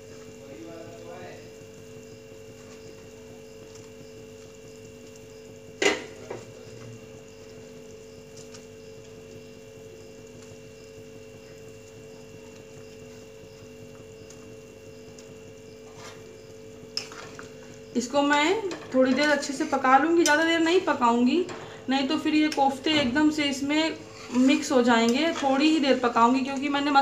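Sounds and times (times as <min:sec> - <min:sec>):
steady hum: 0:00.0 - 0:27.0.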